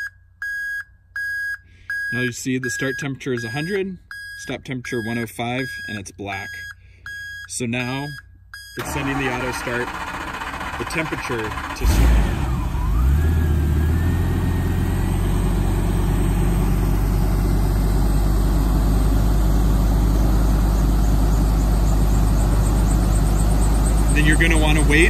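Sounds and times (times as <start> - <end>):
engine starting and running: 8.8 - 25.0
engine whine: 8.8 - 25.0.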